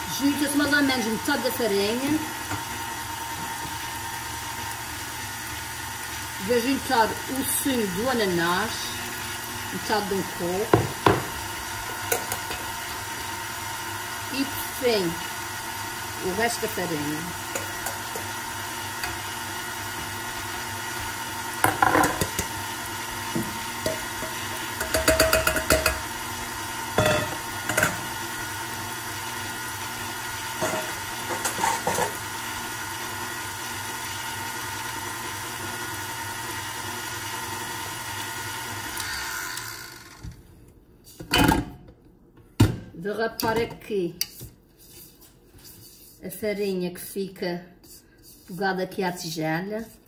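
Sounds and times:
stand mixer running: 0.0 - 40.4
whisk clattering in bowl: 23.8 - 26.0.

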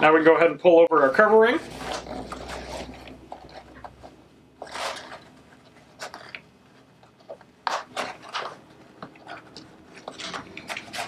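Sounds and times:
rubber sleeve rubbing and scraping: 1.3 - 11.0.

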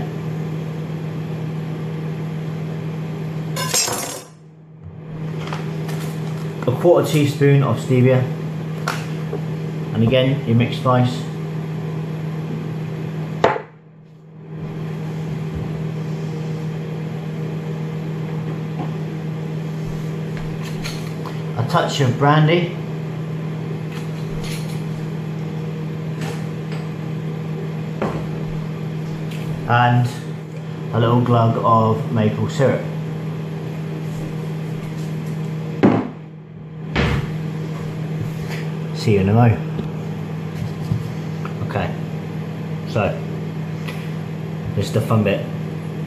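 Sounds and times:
low machine hum: 0.0 - 46.0
thump: 36.9 - 37.3.

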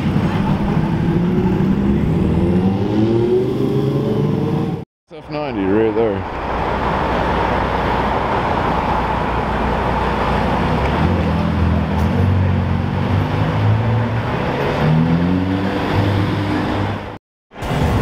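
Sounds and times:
sports car engine accelerating: 0.0 - 4.8
city traffic: 0.0 - 18.0.

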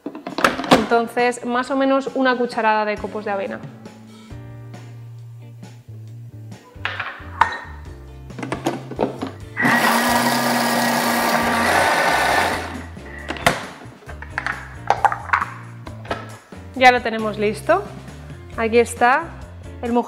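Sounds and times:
food processor whirring: 9.6 - 12.8.

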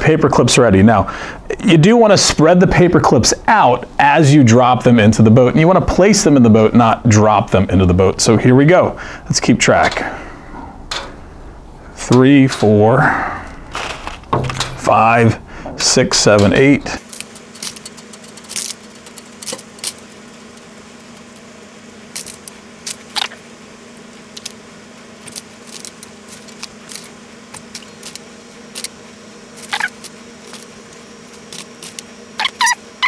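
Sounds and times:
low steady hum: 0.0 - 33.0
metal paper clips clinking: 16.3 - 20.1.

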